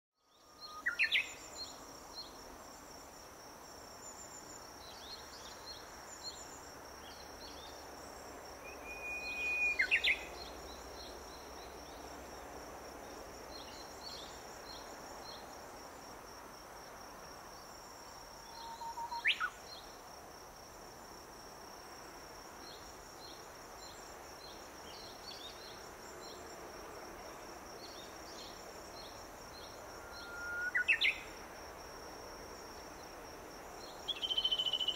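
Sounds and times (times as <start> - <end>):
bush warbler singing: 8.7 - 12.0, 27.8 - 31.3, 33.8 - 34.9.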